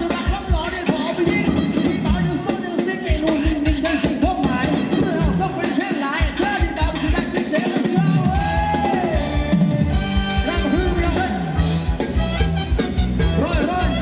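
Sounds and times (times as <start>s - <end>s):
drum kit beat: 0.0s - 14.0s
live band playing dance tune: 0.0s - 14.0s
bass line: 8.1s - 14.0s.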